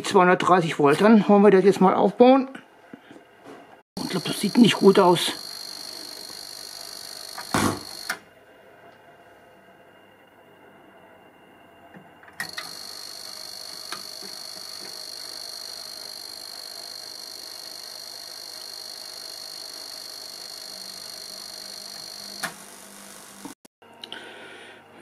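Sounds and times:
high-pitched electronic whine: 4.0s - 8.2s, 12.4s - 23.6s.

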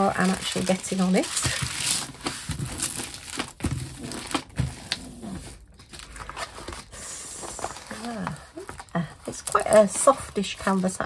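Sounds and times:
plastic crinkling: 0.0s - 11.0s.

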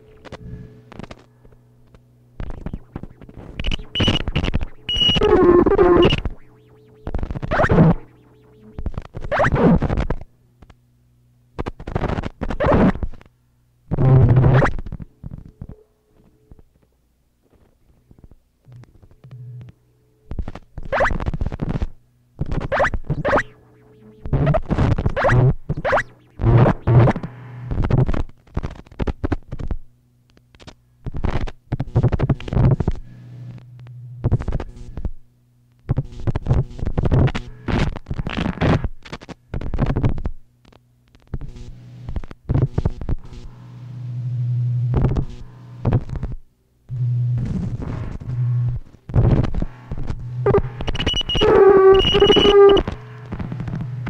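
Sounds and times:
scratchy crackling noise bursts: 0.0s - 10.8s, 11.6s - 13.3s, 13.9s - 15.8s, 17.5s - 35.2s, 35.8s - 54.0s
steady low hum: 0.0s - 54.0s
harsh electronic noise blasts: 2.4s - 10.0s, 47.0s - 53.8s.

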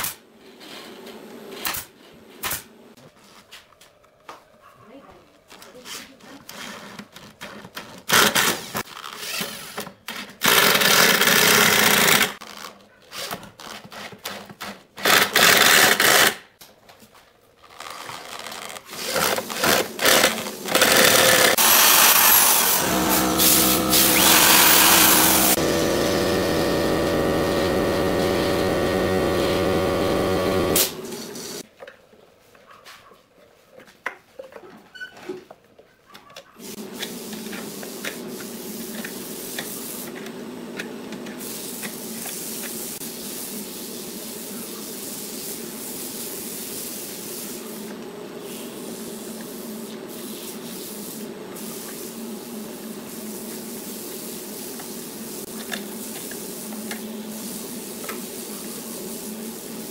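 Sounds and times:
electric drill boring into wood: 19.9s - 31.6s.

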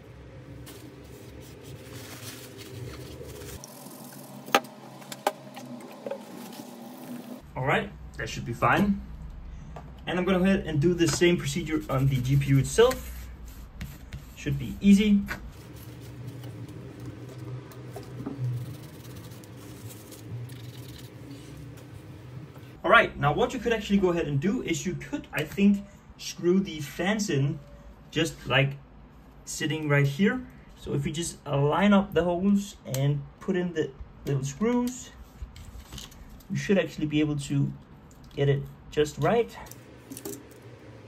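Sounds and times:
steady low hum: 0.0s - 28.2s, 37.6s - 41.0s
cloth and objects handled: 0.6s - 7.4s.

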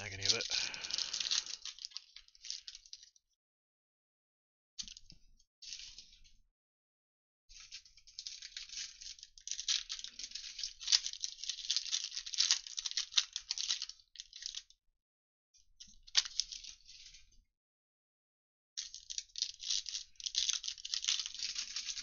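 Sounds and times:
foil wrapper tearing and crinkling: 0.0s - 3.1s, 7.6s - 14.6s, 18.8s - 22.0s.

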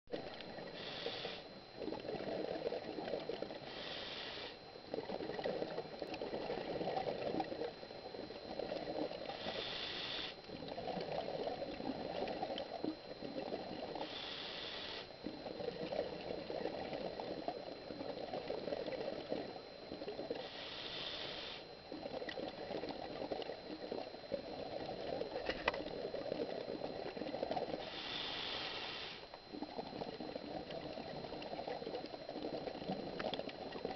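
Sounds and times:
exhaust bubbles bubbling: 0.1s - 3.8s, 4.9s - 9.5s, 10.5s - 14.4s, 15.2s - 20.5s, 21.8s - 27.9s, 29.4s - 33.9s
regulator hissing inhale: 0.6s - 1.5s, 3.6s - 4.6s, 9.3s - 10.4s, 14.0s - 15.1s, 20.4s - 21.6s, 27.8s - 29.3s.

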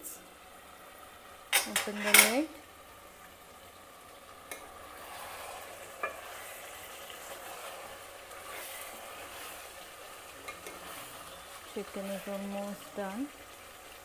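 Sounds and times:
curry sizzling in a pot: 0.0s - 14.0s
spoon stirring thick gravy: 4.6s - 14.0s.

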